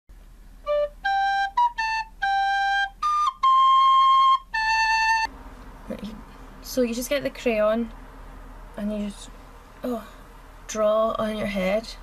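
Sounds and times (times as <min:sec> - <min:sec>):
recorder playing a tune: 0:00.6 - 0:05.3.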